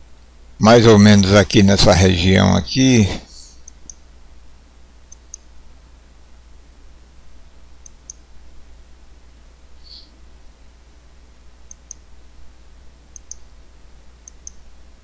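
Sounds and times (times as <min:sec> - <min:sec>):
steady low hum: 0:00.0 - 0:15.0
computer mouse clicking: 0:05.1 - 0:05.5, 0:11.7 - 0:12.0, 0:13.1 - 0:13.4, 0:14.2 - 0:14.6.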